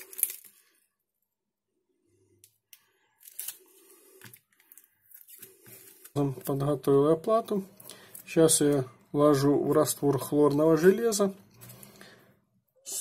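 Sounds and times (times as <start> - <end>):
packing tape rustling: 0.0 - 0.6, 3.2 - 6.6.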